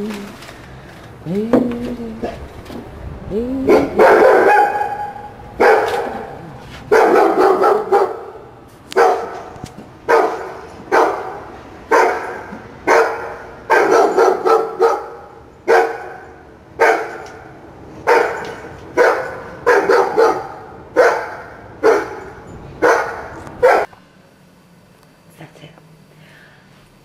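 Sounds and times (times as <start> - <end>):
small dog barking: 3.7 - 23.9.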